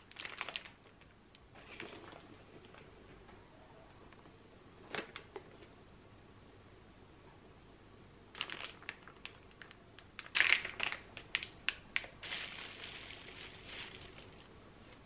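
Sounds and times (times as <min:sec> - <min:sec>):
plastic packaging crinkling: 0:00.0 - 0:01.0, 0:08.3 - 0:14.6
plastic wrap rustle: 0:00.0 - 0:02.6, 0:08.3 - 0:15.0.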